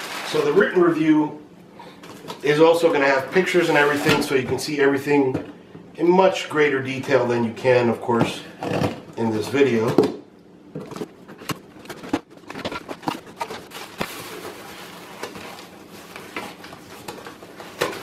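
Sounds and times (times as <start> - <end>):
plastic wrapping rustling: 0.0 - 1.2, 10.9 - 18.0.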